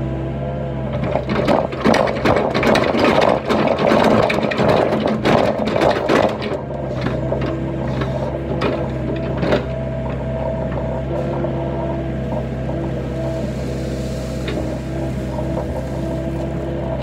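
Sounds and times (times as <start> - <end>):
diesel engine running: 0.0 - 17.0
hydraulic whine: 0.9 - 17.0
stones clattering into truck bed: 1.0 - 9.8.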